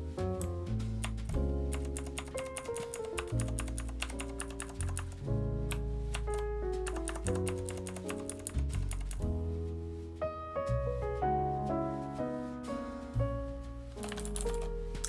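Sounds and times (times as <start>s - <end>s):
background music with chords and bass: 0.0s - 15.0s
clicky mechanical keyboard keys: 0.4s - 5.2s, 6.1s - 9.2s, 14.0s - 14.6s.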